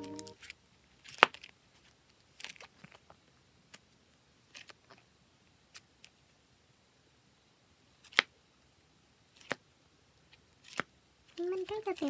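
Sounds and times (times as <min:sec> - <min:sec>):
plastic sleeves rustling: 0:10.6 - 0:12.0.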